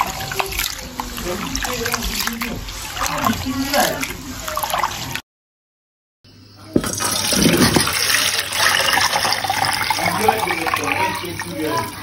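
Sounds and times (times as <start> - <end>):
hands sloshing rice in water: 0.0 - 5.2
water pouring between pots: 0.0 - 5.2, 6.8 - 12.0.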